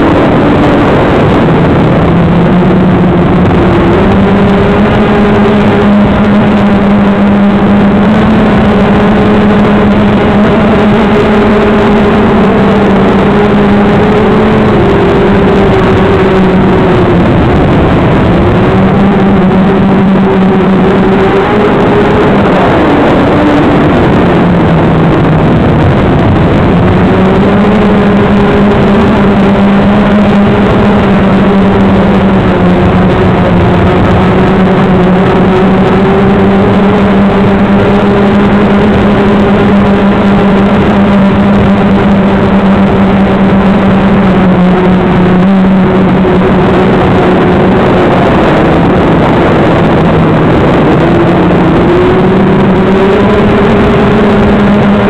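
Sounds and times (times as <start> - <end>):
model aircraft motor humming: 0.0 - 55.0.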